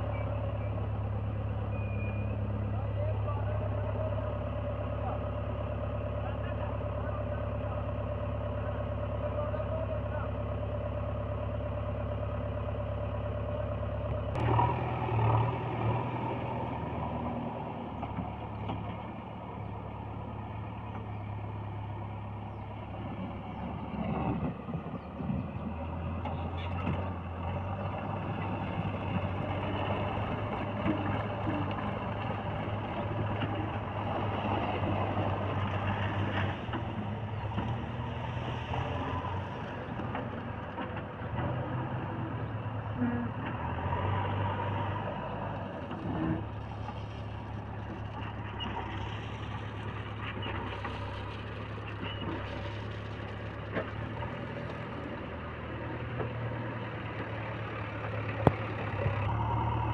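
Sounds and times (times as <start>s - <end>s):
diesel engines droning: 0.0s - 59.9s.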